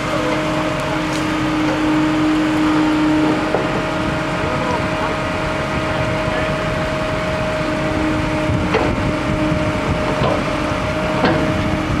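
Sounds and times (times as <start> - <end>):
engine hum: 0.0 - 12.0
wind buffeting microphone: 3.1 - 12.0
sharp knocks: 11.2 - 11.5.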